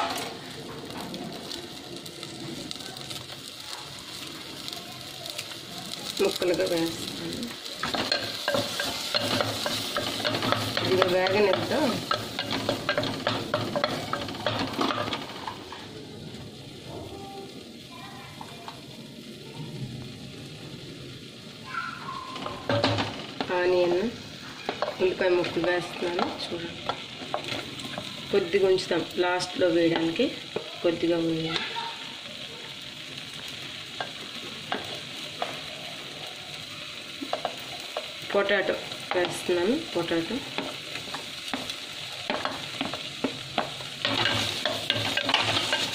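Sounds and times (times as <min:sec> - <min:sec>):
chillies sizzling in cream: 0:00.0 - 0:45.9
wooden spatula scraping pot: 0:40.5 - 0:45.9.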